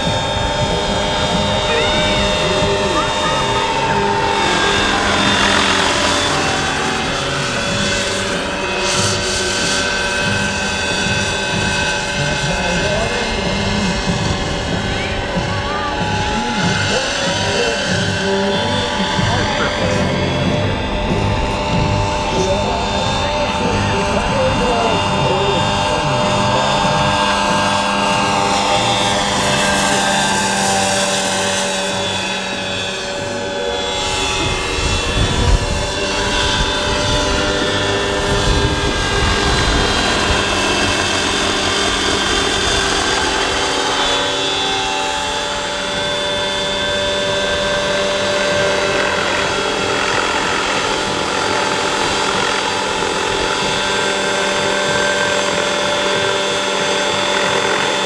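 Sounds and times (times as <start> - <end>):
low rumble: 0.0 - 48.0
helicopter rotor whir: 0.0 - 58.0
model helicopter electric whine: 0.0 - 58.0.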